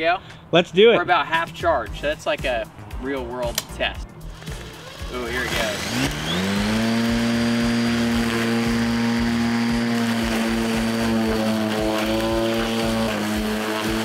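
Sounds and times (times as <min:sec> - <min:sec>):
electric lawn mower whining: 0:04.3 - 0:14.0.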